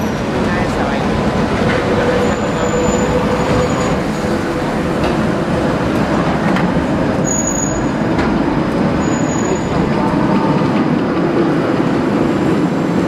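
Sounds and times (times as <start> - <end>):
tram wheels rumbling on rails: 0.0 - 13.0
high-pitched wheel squeals: 2.1 - 4.3, 7.2 - 8.0, 9.0 - 9.8.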